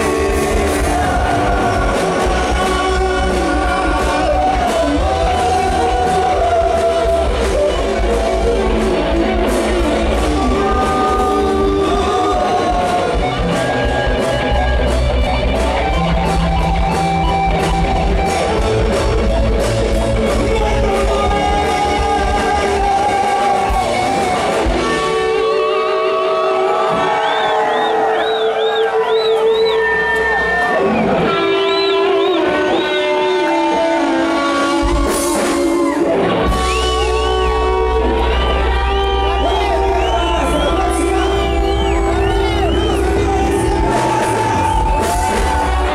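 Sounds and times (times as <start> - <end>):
male singer: 0.0 - 14.3, 20.1 - 26.4, 39.2 - 45.9
live rock band: 0.0 - 45.9.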